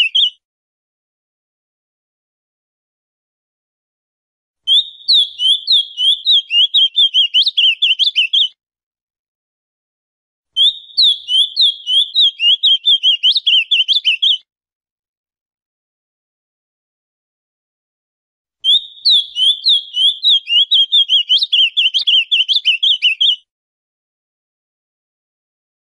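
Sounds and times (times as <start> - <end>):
bird singing high varied notes: 0.0 - 0.4, 4.7 - 8.5, 10.6 - 14.4, 18.6 - 23.4.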